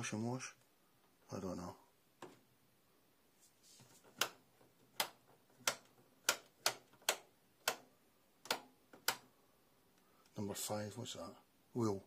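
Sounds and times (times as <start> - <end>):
selector dial clicking: 4.2 - 9.3.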